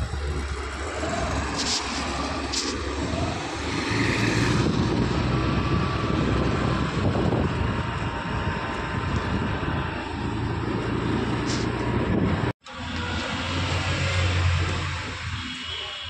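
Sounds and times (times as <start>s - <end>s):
motorbike engine rumble: 0.0s - 15.4s
road and wind noise: 0.0s - 16.0s
brief high hisses: 1.5s - 2.9s.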